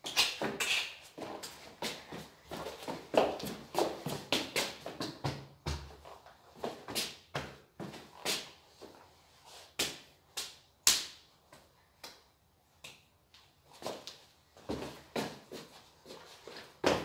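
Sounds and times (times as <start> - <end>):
hand claps and slaps: 9.8 - 11.2.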